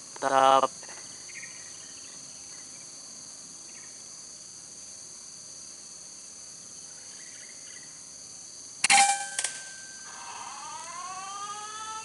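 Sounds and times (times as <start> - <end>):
insects droning: 0.0 - 12.0
rising whine: 9.4 - 12.0.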